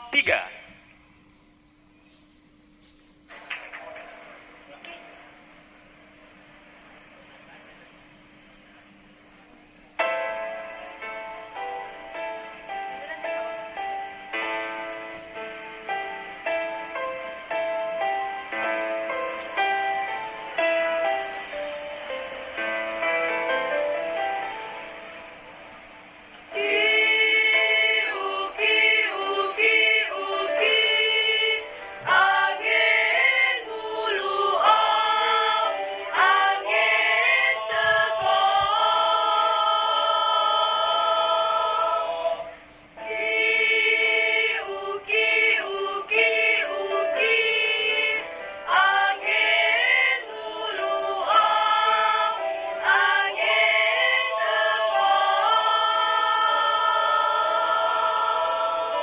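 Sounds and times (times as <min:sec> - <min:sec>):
mixed choir singing in parts: 0:26.5 - 0:59.0.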